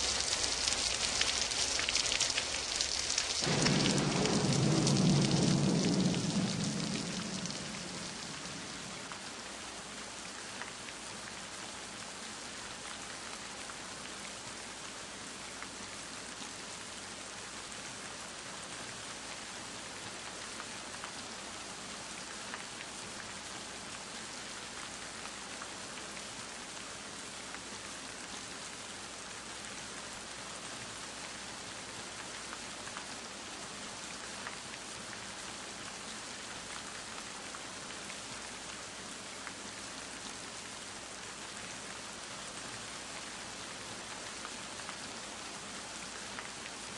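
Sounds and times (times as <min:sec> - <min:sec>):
raindrop ticks: 0:00.0 - 0:09.3
steady rain falling: 0:00.0 - 0:46.9
low rumble: 0:03.5 - 0:09.2.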